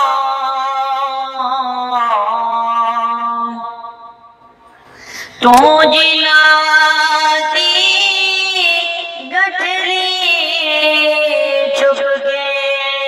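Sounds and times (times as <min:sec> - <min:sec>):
young man singing unaccompanied: 0:05.4 - 0:13.0.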